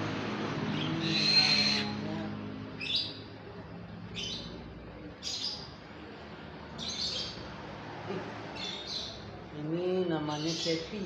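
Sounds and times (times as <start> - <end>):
owl high-pitched calls: 1.0 - 2.0.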